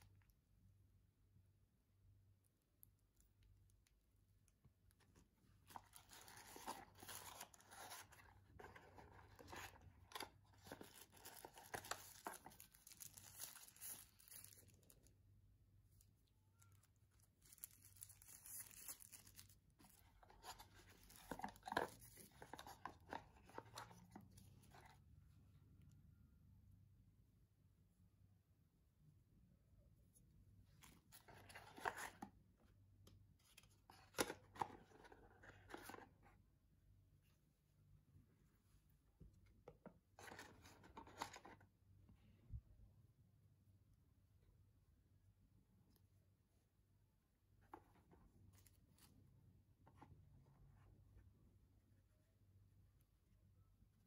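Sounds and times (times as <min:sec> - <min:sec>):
plastic packaging crinkling: 0:06.0 - 0:15.0.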